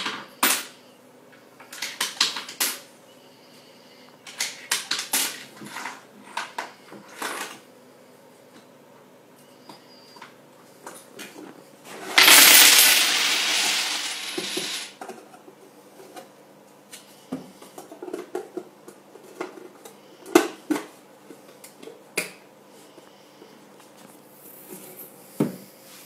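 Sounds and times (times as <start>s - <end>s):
coins clinking in money box: 12.0s - 15.0s.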